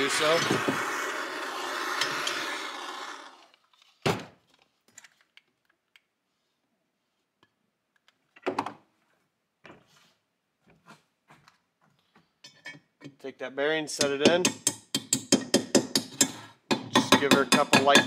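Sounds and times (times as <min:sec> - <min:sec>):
gas torch hissing: 0:00.0 - 0:03.4.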